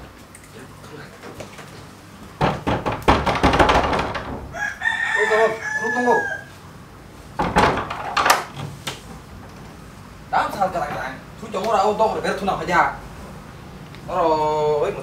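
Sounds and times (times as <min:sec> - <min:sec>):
clattering knocks: 0:02.4 - 0:04.6, 0:07.4 - 0:08.7
rooster crowing: 0:04.4 - 0:06.7.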